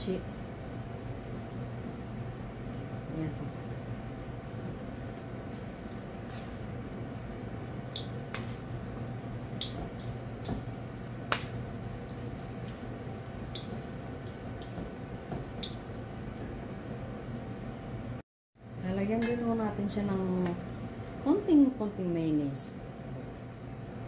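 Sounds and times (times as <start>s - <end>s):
steady background hum: 0.0s - 24.0s
chopsticks tapping metal bowl: 7.9s - 8.8s, 13.5s - 15.8s, 19.1s - 19.5s.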